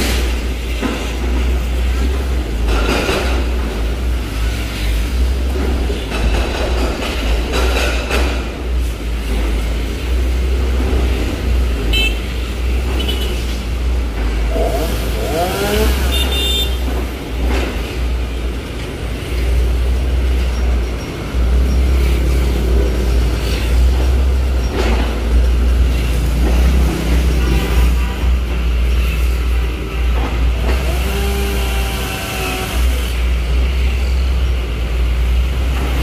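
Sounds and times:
cars and motorbikes passing: 0.0s - 36.0s
deep continuous traffic rumble: 0.0s - 36.0s
engine revving: 14.3s - 16.9s, 30.5s - 33.4s.

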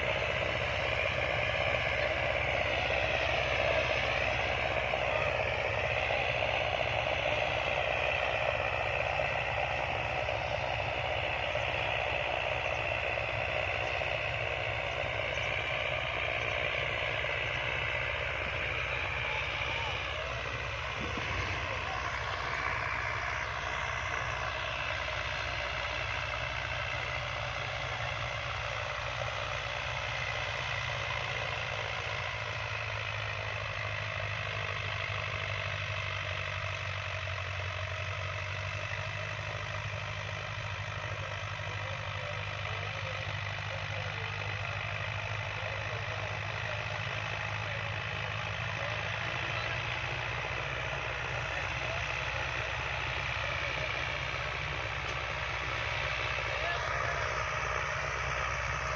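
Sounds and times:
tractor engine running under load: 0.0s - 58.9s.

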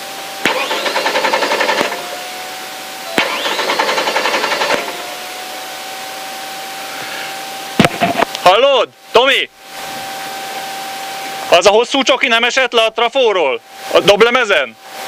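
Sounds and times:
car engine cranking on starter: 3.2s - 5.1s.

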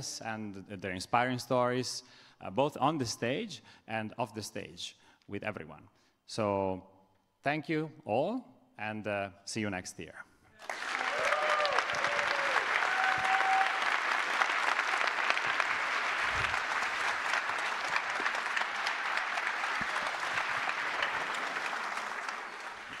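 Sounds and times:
audience applauding: 10.6s - 23.0s
brief cheers: 10.9s - 14.0s.

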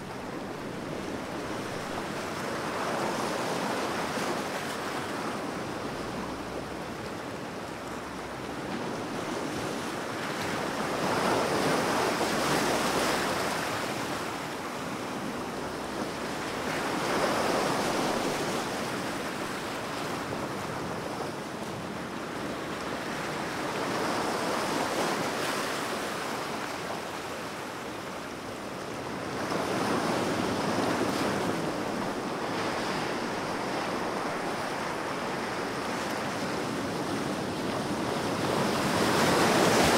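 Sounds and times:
ocean surf waves: 0.0s - 39.9s.

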